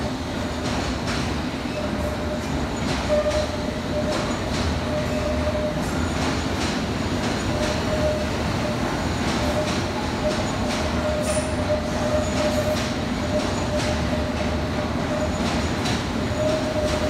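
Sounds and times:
train rumbling: 0.0 - 17.0
thin wheel squeal: 9.6 - 14.4.

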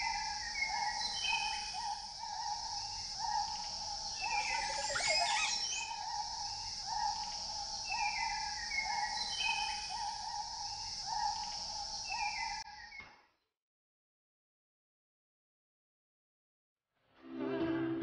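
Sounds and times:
steady high tone: 4.5 - 5.9.

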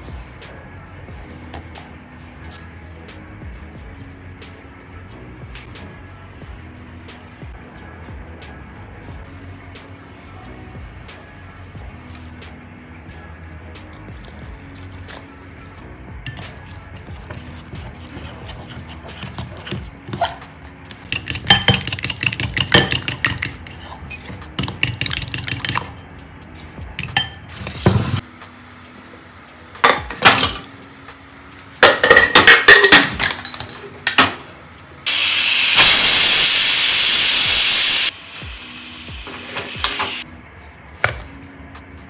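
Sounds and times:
spoon scraping glass bowl: 16.3 - 20.4, 23.3 - 24.4
metal lid clanks: 31.8 - 34.4
pressure cooker whistling steam: 35.1 - 40.2.

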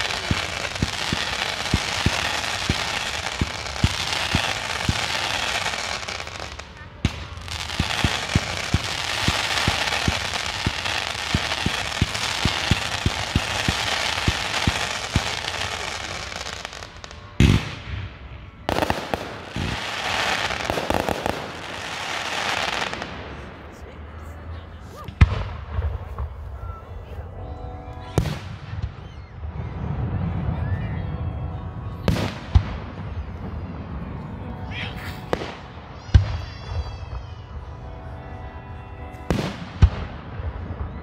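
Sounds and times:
fireworks hissing and crackling: 0.0 - 18.0, 18.7 - 23.7, 34.8 - 37.5.

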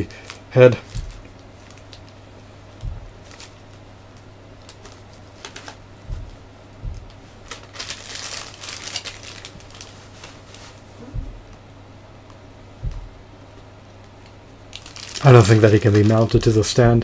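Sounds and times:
plastic wrapping crinkling: 0.0 - 10.9, 14.2 - 16.8
low electrical hum: 0.0 - 17.0
plastic bumps and clicks: 0.8 - 2.0, 2.8 - 3.6, 4.6 - 9.8, 12.8 - 13.2.

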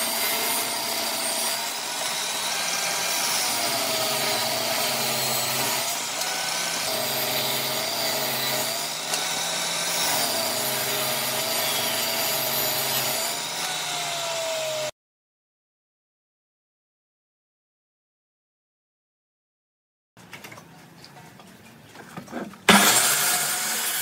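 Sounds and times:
table saw ripping wood: 0.0 - 14.9, 22.4 - 24.0.

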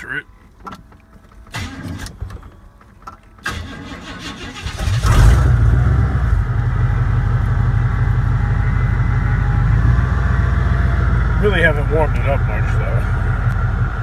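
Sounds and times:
engine idling: 0.0 - 14.0
starter cranking engine: 3.3 - 5.6.

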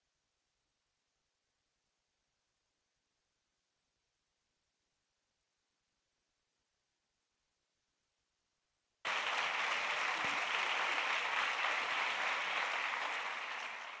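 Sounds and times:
audience applauding: 9.1 - 14.0.

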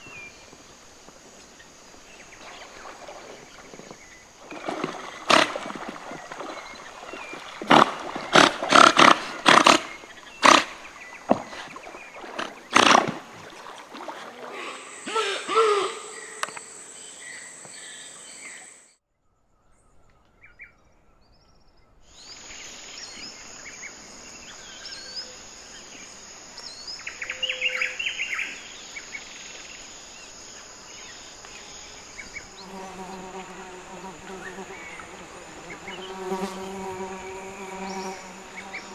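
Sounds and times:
high insect drone: 0.0 - 18.9, 22.2 - 38.9
otters splashing: 2.4 - 15.1
low bee-like buzz: 31.5 - 38.9.

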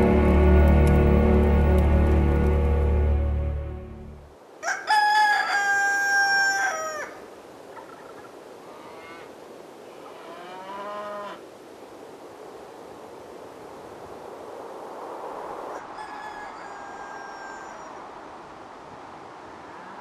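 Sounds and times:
rooster crowing: 4.6 - 7.2, 15.7 - 18.1
distant rooster calls: 4.6 - 9.3, 15.7 - 18.2.

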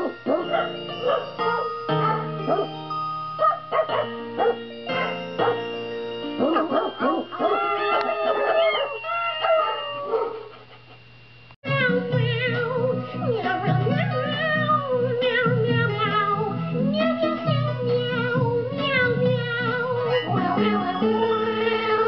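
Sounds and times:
backing music: 0.0 - 8.4
dogs barking in time to music: 0.0 - 10.8, 15.4 - 22.0.

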